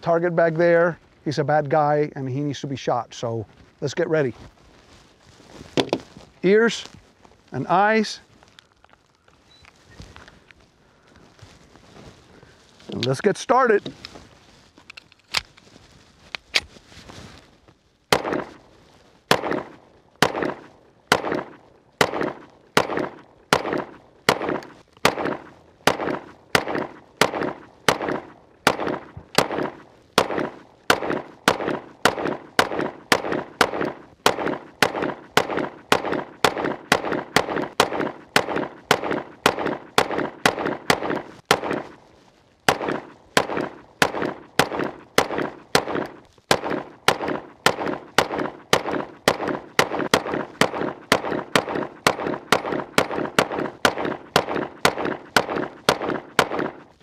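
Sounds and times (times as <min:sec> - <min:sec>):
pistol shots with echo: 0:18.1 - 0:18.6, 0:19.3 - 0:41.9, 0:42.7 - 0:56.8.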